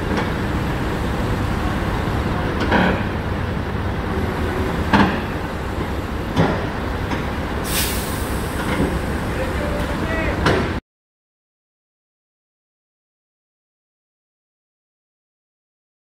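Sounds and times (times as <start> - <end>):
bulldozer diesel engine running: 0.0 - 10.8
metal clanks from tracks: 0.0 - 10.8
short hiss: 7.6 - 8.8.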